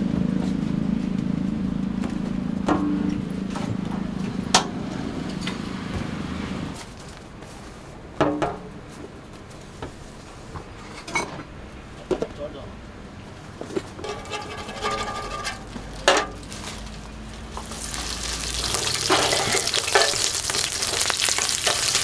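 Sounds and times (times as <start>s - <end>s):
engine humming: 0.0s - 7.4s, 12.8s - 22.0s
utensils clinking on metal: 14.0s - 16.6s, 18.7s - 22.0s.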